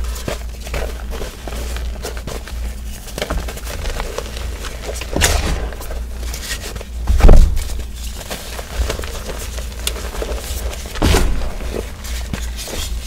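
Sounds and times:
chalk crunching and crumbling: 0.0s - 13.0s
muffled thump in powder: 11.0s - 11.9s.

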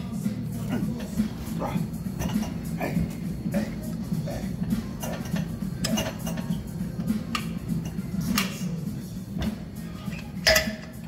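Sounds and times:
background music: 0.0s - 11.0s
exercise machine clinking: 10.2s - 11.0s.

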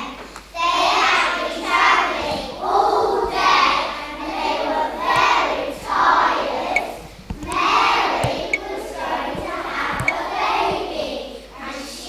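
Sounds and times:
young children singing together: 0.0s - 12.0s
dull thumps: 6.6s - 11.0s.

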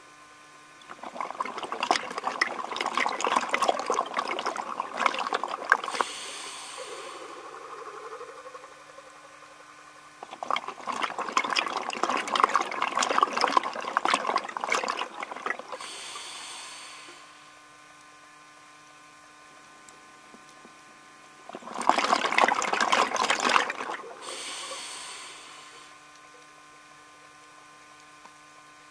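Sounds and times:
bubbling exhalations through regulator: 0.8s - 17.6s, 21.4s - 26.6s
hissing inhale through regulator: 5.8s - 7.6s, 15.7s - 17.6s, 24.1s - 26.0s.

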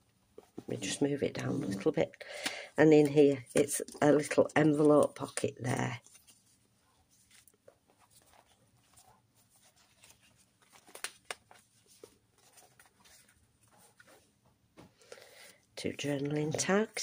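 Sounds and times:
paper pages rustling: 1.6s - 14.4s.

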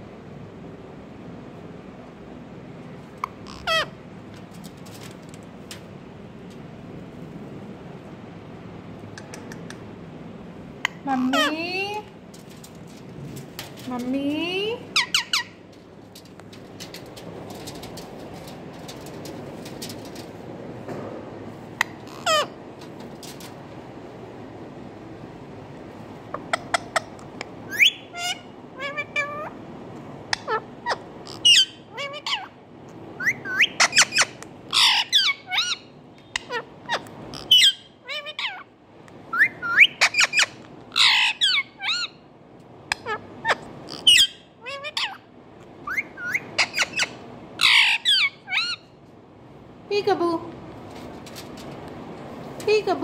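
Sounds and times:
parakeet squawking and chirping: 3.2s - 4.0s, 10.8s - 12.0s, 14.9s - 20.2s, 21.8s - 22.6s, 26.3s - 29.6s, 30.3s - 32.6s, 33.2s - 38.7s, 39.3s - 42.2s, 42.9s - 49.0s.

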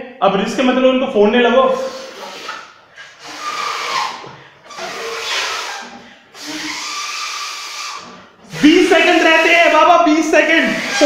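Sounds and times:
person blowing up a balloon: 1.7s - 9.8s, 10.6s - 11.0s.

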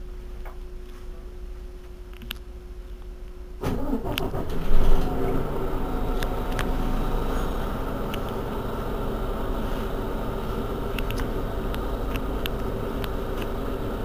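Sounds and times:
bus diesel engine revving: 3.8s - 14.0s.

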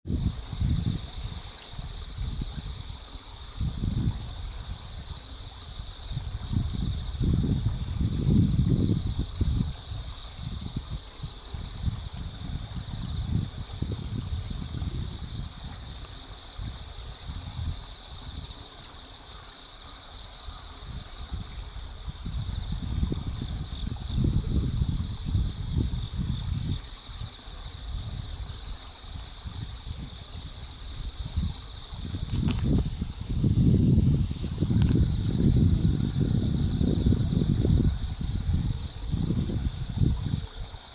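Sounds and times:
crickets and insects trilling: 0.0s - 40.9s
wind buffeting microphone: 0.0s - 40.9s
click: 34.8s - 35.0s.

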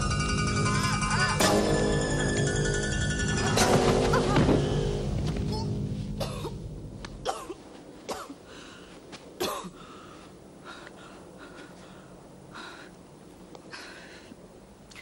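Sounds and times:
background music: 0.0s - 7.5s.

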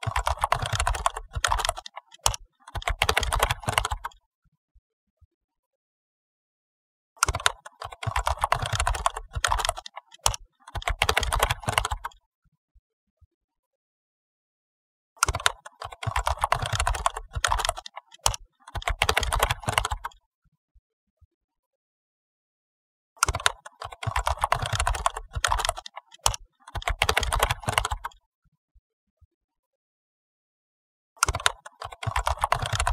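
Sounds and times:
keyboard typing clicks: 0.0s - 4.2s, 7.2s - 12.2s, 15.2s - 20.2s, 23.2s - 28.2s, 31.2s - 32.9s.

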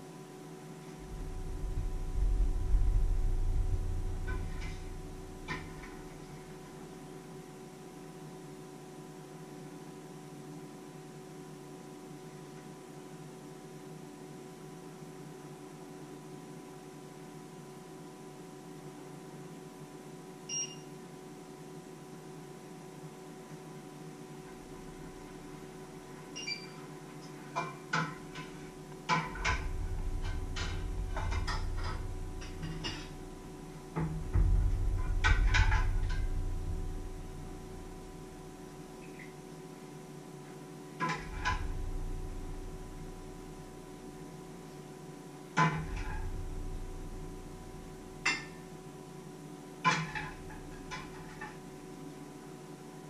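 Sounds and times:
steady hum: 0.0s - 12.3s, 21.2s - 53.0s
low rumble: 1.0s - 7.0s, 29.3s - 39.1s, 41.2s - 44.2s, 45.8s - 48.3s.

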